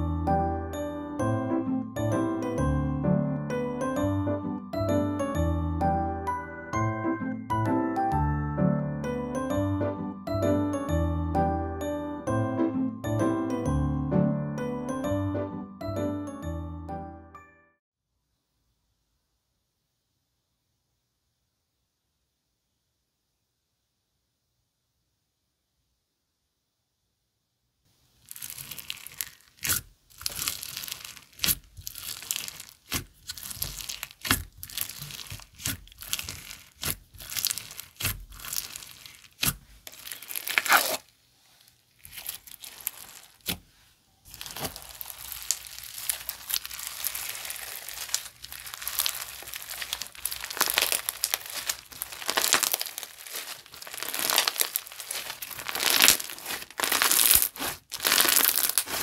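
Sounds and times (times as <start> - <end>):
slime crackling and popping: 28.1 - 41.1, 41.9 - 59.0.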